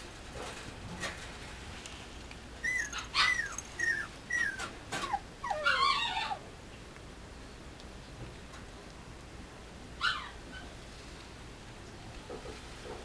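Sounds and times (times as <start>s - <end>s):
puppy whimpering: 2.6s - 6.4s.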